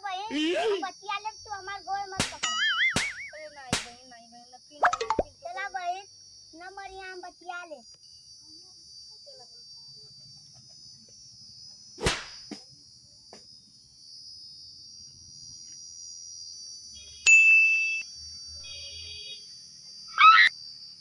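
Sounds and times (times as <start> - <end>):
sharp swish: 12.0 - 12.4
bright electronic ding: 17.3 - 18.0
soft repeating chime tone: 17.3 - 18.0.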